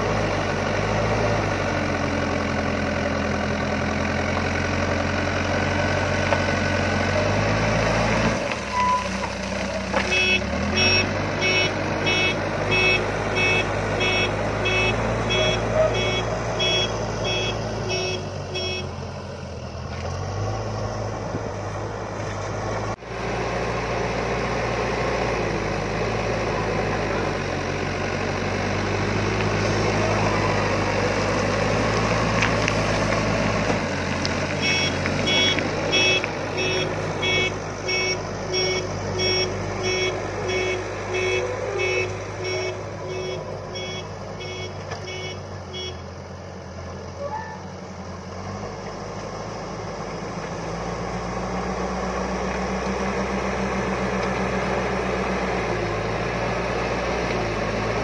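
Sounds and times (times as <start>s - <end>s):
diesel engine under load: 0.0s - 58.0s
reversing alarm beeping: 10.1s - 18.9s, 34.6s - 46.0s.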